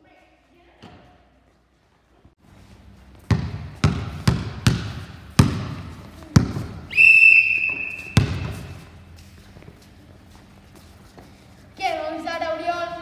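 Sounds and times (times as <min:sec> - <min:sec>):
basketball bouncing on hall floor: 0:00.8 - 0:01.2, 0:03.1 - 0:06.9, 0:07.5 - 0:09.7
whistle blast: 0:06.9 - 0:08.6.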